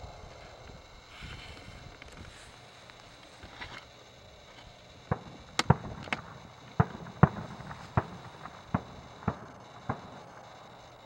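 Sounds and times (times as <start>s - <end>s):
fireworks bangs: 4.5s - 10.5s.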